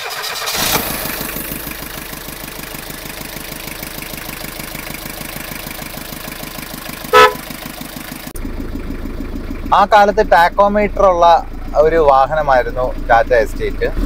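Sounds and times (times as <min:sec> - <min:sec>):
car engine idling: 0:00.0 - 0:14.0
car horn beep: 0:07.1 - 0:07.6.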